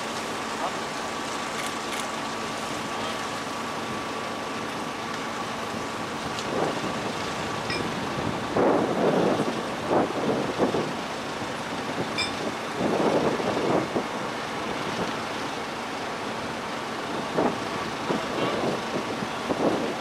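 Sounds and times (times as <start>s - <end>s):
diesel engine running low: 0.0s - 20.0s
wind buffeting microphone: 5.8s - 15.3s, 17.0s - 20.0s.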